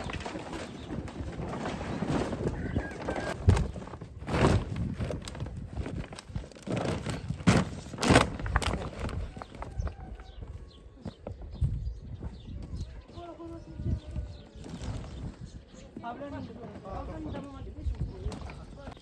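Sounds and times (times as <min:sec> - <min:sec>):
plastic tarpaulin rustling: 0:00.0 - 0:09.8, 0:14.6 - 0:15.5.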